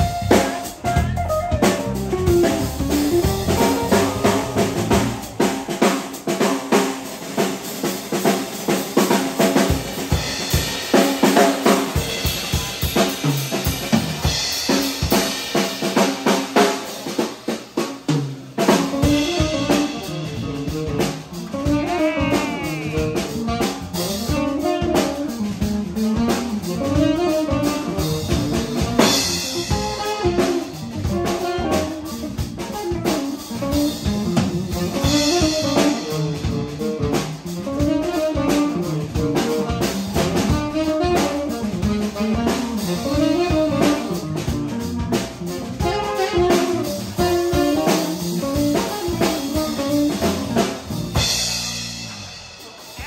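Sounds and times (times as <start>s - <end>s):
live blues band: 0.0s - 53.0s
tenor saxophone: 18.9s - 34.1s, 34.7s - 51.4s.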